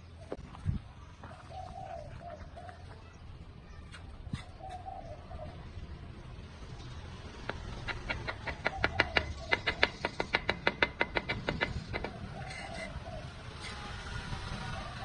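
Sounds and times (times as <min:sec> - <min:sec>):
trowel tapping bricks: 0:07.4 - 0:12.9.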